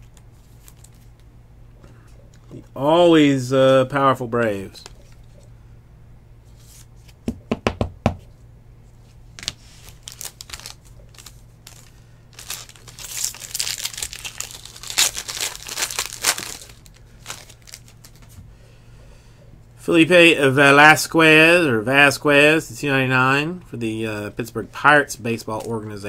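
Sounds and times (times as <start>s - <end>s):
plastic wrapper crinkling: 0.1s - 1.2s, 9.4s - 18.4s.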